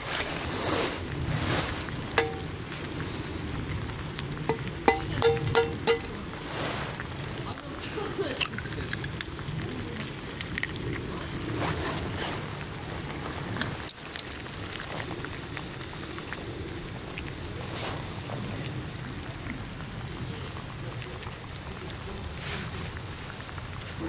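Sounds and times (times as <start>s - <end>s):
broth bubbling in a pot: 0.0s - 24.0s.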